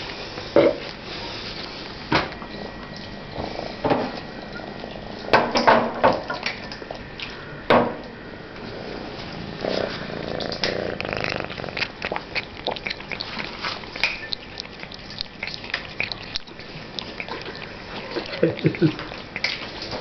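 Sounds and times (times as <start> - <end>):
cat purring: 8.6 - 19.2.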